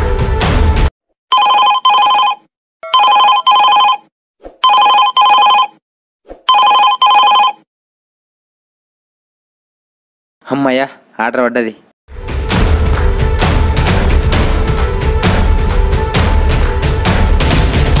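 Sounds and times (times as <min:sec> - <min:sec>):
telephone ringing: 0:01.3 - 0:05.8, 0:06.5 - 0:07.7.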